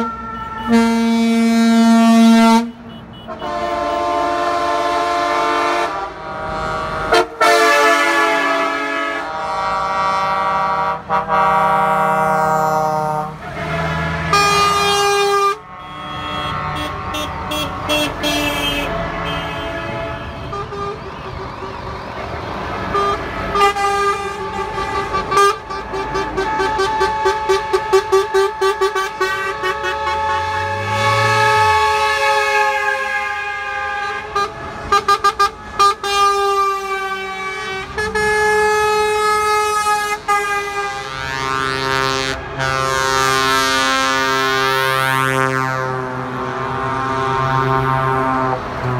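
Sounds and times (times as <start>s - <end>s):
truck air horns: 0.0s - 48.9s
truck engine noise: 0.0s - 48.9s.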